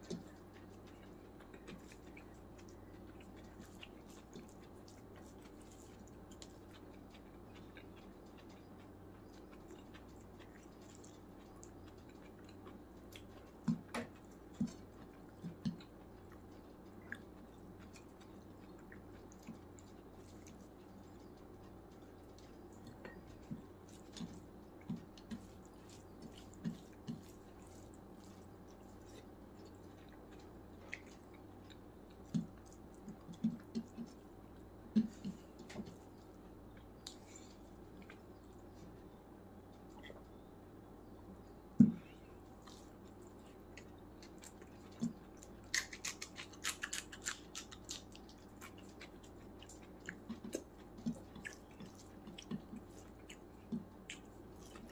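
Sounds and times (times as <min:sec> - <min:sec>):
fingers squishing rice: 0:00.0 - 0:39.2
chewing: 0:00.0 - 0:40.5, 0:41.1 - 0:54.9
faint steady hum: 0:00.0 - 0:54.9.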